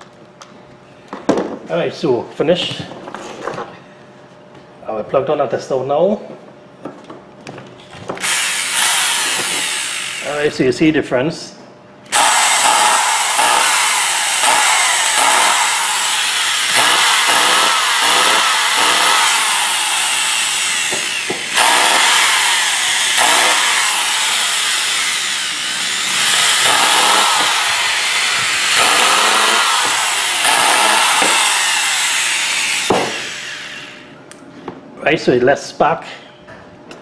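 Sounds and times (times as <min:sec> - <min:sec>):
hammer drill motor running: 0:08.2 - 0:10.6, 0:12.1 - 0:34.1.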